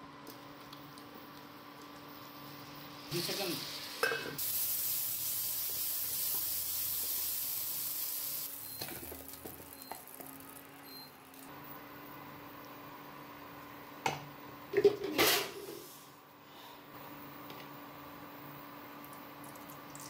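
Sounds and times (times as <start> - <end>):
mushrooms sizzling in hot oil: 2.0 - 11.5.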